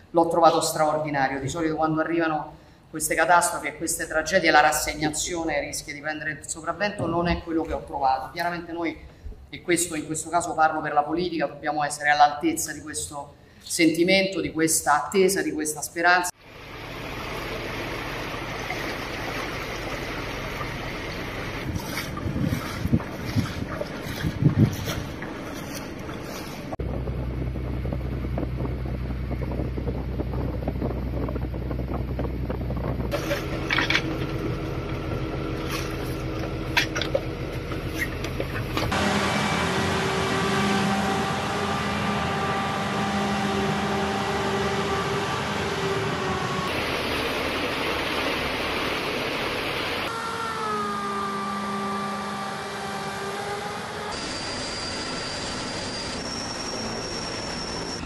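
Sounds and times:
boat engine running: 0:03.1 - 0:10.6, 0:16.4 - 0:58.0
wind on microphone: 0:06.9 - 0:07.8, 0:21.6 - 0:36.7
vehicle engines running: 0:16.3 - 0:50.1
helicopter turbine whine: 0:26.1 - 0:58.0.

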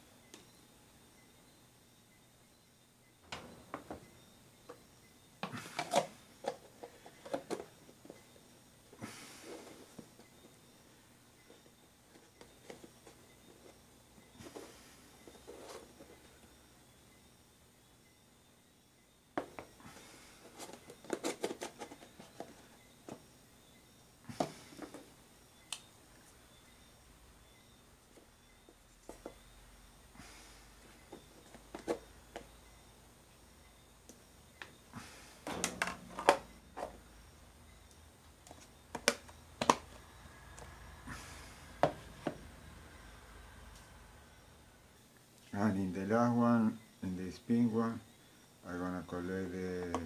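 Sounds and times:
plastic containers clicking and knocking: 0:05.4 - 0:08.2, 0:20.5 - 0:23.2, 0:49.8 - 0:50.0.

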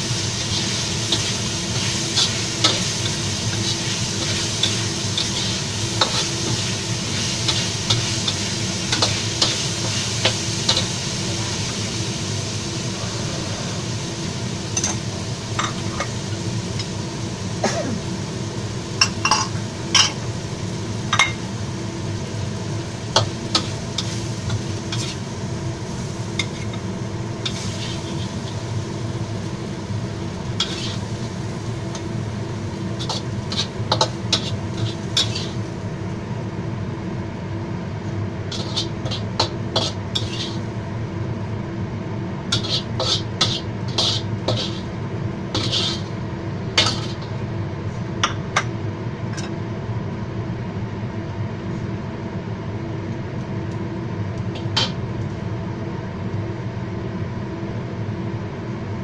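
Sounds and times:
steady background hum: 0:00.0 - 0:59.0
metal spatula scraping a wok: 0:00.5 - 0:10.9, 0:23.5 - 0:25.2, 0:27.5 - 0:28.6, 0:30.6 - 0:31.1, 0:33.0 - 0:35.6, 0:38.5 - 0:40.7, 0:42.5 - 0:44.9, 0:45.5 - 0:46.1, 0:46.8 - 0:47.3.

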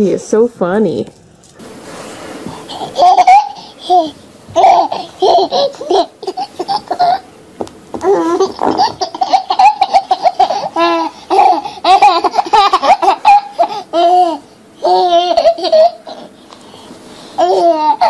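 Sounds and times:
baby laughing: 0:02.7 - 0:07.3, 0:08.0 - 0:16.4, 0:17.4 - 0:18.0.

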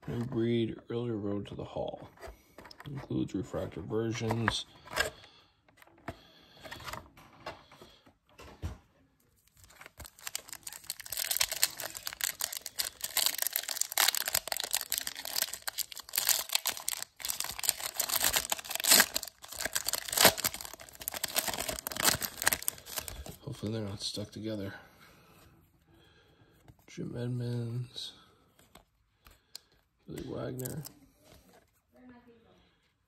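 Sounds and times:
foil wrapper crinkling and tearing: 0:09.5 - 0:23.4.

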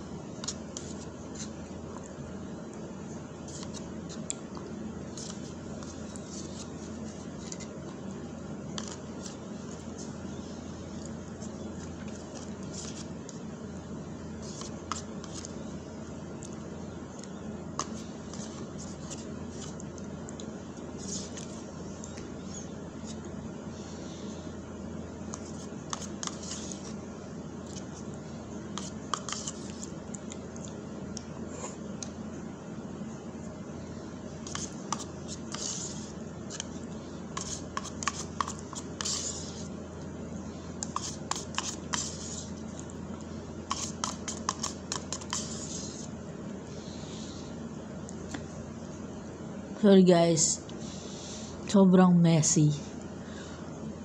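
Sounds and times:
steady low hum: 0:00.0 - 0:54.0
plastic spoon scraping a cup: 0:25.3 - 0:26.9, 0:28.8 - 0:29.9, 0:40.8 - 0:42.6, 0:43.7 - 0:46.1
spoon scraping plastic cup: 0:43.7 - 0:46.1.

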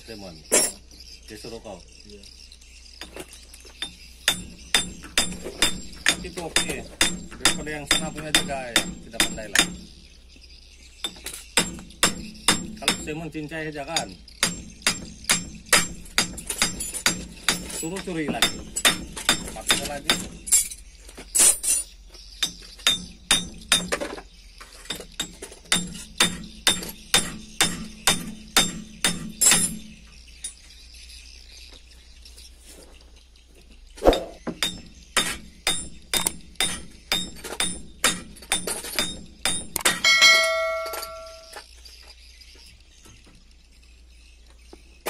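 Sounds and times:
hammer striking metal hub: 0:03.8 - 0:09.9, 0:11.0 - 0:13.2, 0:13.9 - 0:20.8, 0:24.9 - 0:29.9, 0:34.1 - 0:41.6
bell-like chime: 0:40.0 - 0:41.6.

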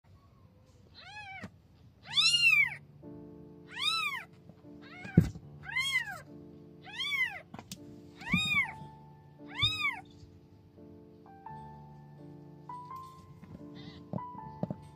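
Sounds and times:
kitten meowing: 0:00.9 - 0:02.8, 0:03.7 - 0:06.2, 0:06.8 - 0:07.5, 0:08.2 - 0:08.8, 0:09.5 - 0:10.1
soft background music: 0:01.0 - 0:14.9.

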